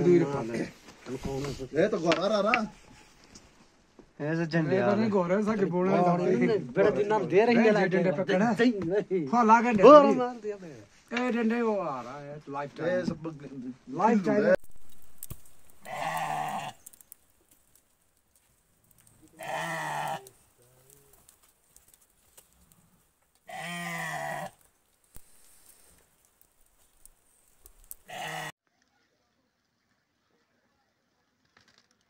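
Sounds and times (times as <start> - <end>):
sheep bleating: 15.8 - 16.8, 19.4 - 20.4, 23.5 - 24.6, 28.1 - 28.5.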